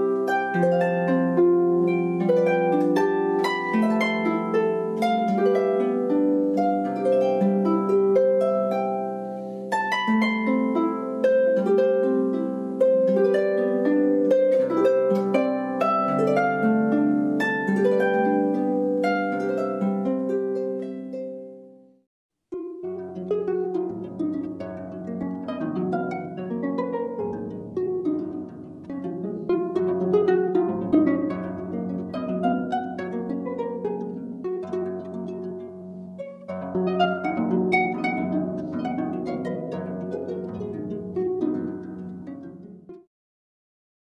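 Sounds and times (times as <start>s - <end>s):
solo harp playing: 0.0s - 43.1s.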